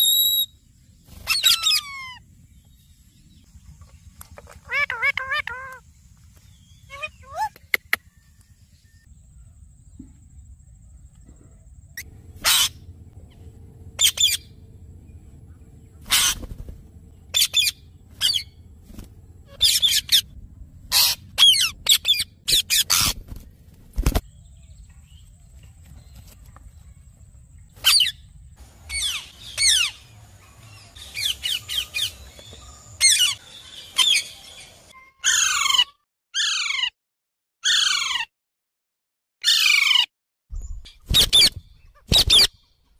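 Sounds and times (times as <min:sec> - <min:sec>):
parakeets squawking: 0:01.2 - 0:02.2, 0:04.7 - 0:05.8, 0:12.0 - 0:12.9, 0:14.0 - 0:14.6, 0:16.0 - 0:16.6, 0:17.3 - 0:18.6, 0:19.5 - 0:20.3, 0:20.9 - 0:23.4, 0:35.2 - 0:36.9, 0:37.6 - 0:38.3.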